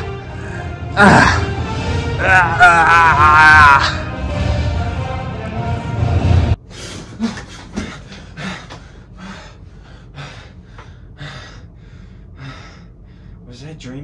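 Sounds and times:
loud music: 0.0 - 6.6
man panting heavily: 6.6 - 13.4.

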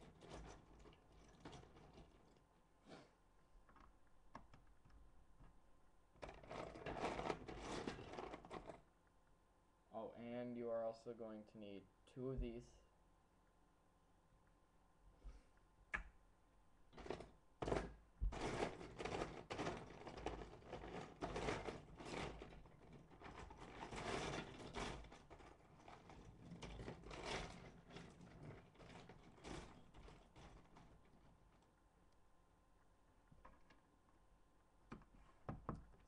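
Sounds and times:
plastic bricks clattering: 0.0 - 2.4, 6.2 - 8.8, 16.9 - 31.7.

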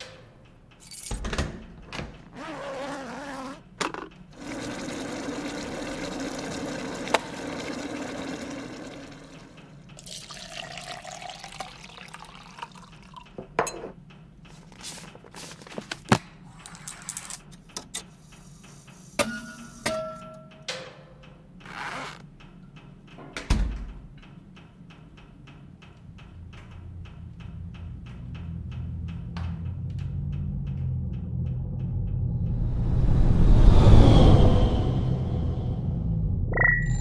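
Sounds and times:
wavering tone: 36.5 - 37.0.

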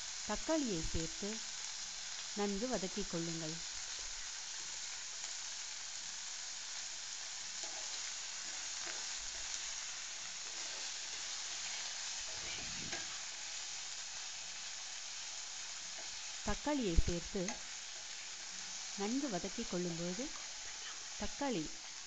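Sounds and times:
onions sizzling in hot oil: 0.0 - 22.0
spatula scraping pan: 10.4 - 13.3.

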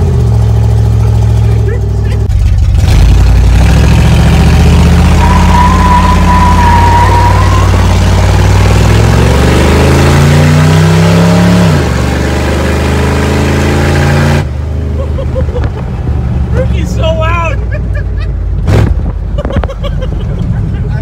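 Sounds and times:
loud pickup engine accelerating: 0.0 - 21.0.

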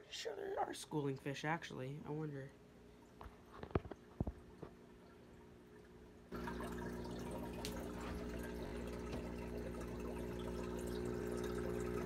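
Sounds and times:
bubbles crackling: 3.6 - 12.0.

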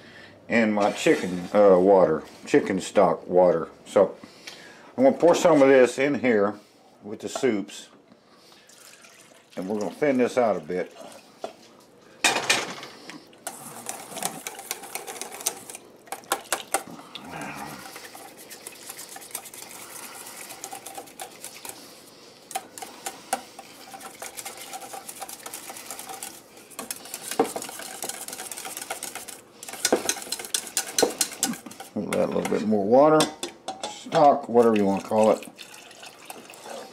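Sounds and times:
liquid splashing into metal bowl: 8.6 - 10.4
whisk scraping metal bowl: 13.4 - 32.6.

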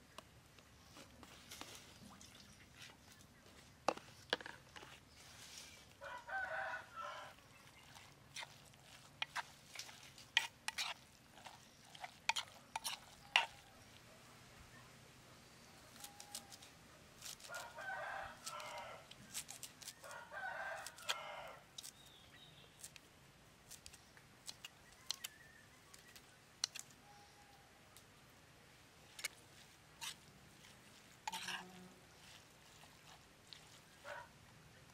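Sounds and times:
rooster crowing: 6.0 - 7.4, 17.5 - 19.1, 20.0 - 21.6.

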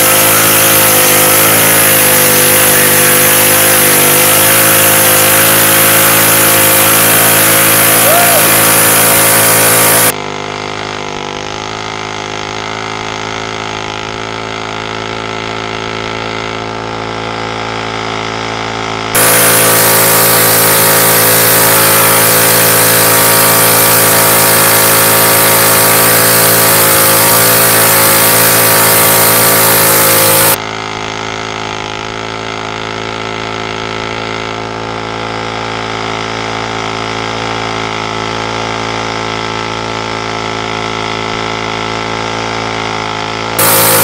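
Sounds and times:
mini bike engine at high revs: 0.0 - 44.0
tire spinning on concrete: 0.0 - 44.0.

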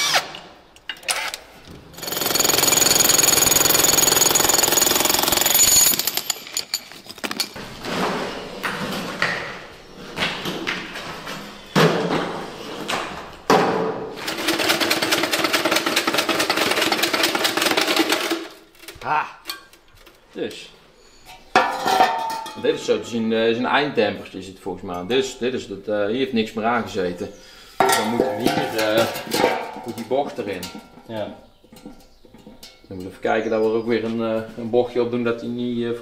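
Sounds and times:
impact wrench hammering: 2.0 - 6.5
metal knocks: 27.8 - 32.9.

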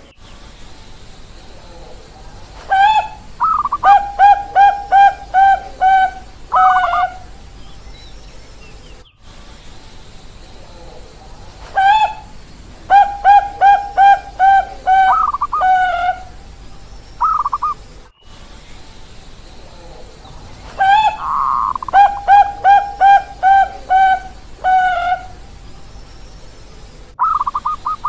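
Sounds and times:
dove cooing: 1.6 - 7.6, 10.6 - 17.9, 19.7 - 25.8, 27.2 - 28.0.

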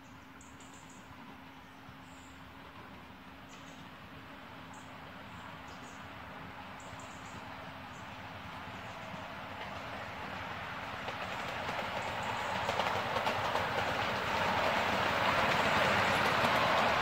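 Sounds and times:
miniature train wheels clattering: 11.0 - 17.0.

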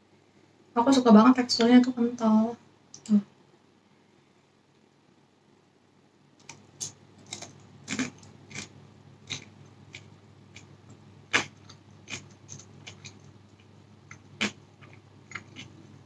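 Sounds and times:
wet mouth chewing smacks: 11.3 - 15.8.

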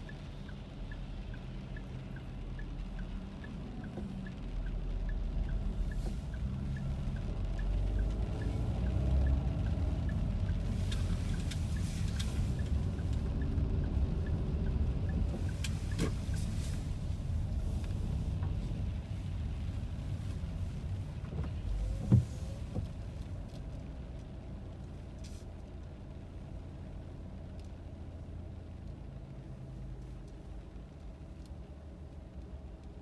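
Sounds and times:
tyre and engine rumble: 0.0 - 33.0.

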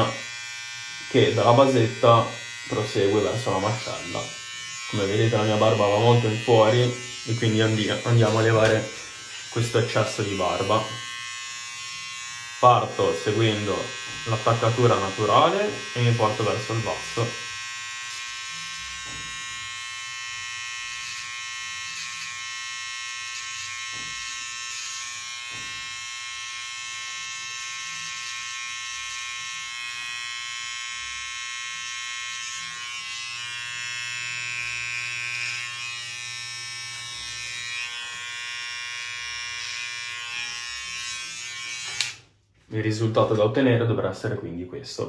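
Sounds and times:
electric hair clipper buzzing: 0.0 - 42.4.

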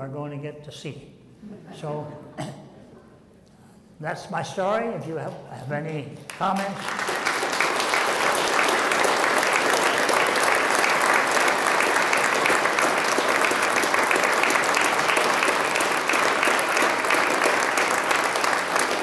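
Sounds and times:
audience applauding: 6.3 - 19.0.

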